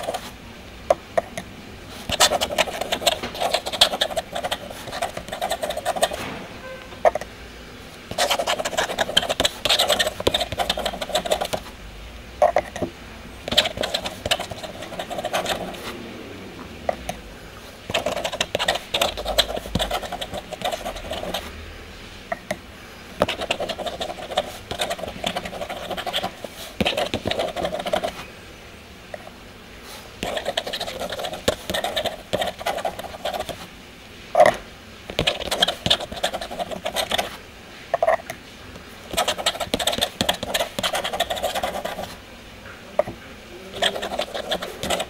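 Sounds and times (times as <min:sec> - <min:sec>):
pen scratching on paper: 0:00.0 - 0:00.3, 0:02.1 - 0:06.2, 0:08.1 - 0:11.7, 0:13.5 - 0:15.9, 0:17.9 - 0:21.5, 0:23.2 - 0:28.2, 0:30.2 - 0:33.7, 0:35.1 - 0:37.4, 0:39.1 - 0:42.2, 0:43.7 - 0:45.0.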